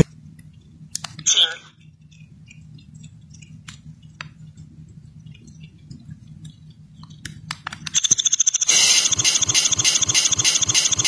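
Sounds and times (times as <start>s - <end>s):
faint low hum: 0.0s - 11.0s
harsh stuttering buzz: 8.0s - 11.0s.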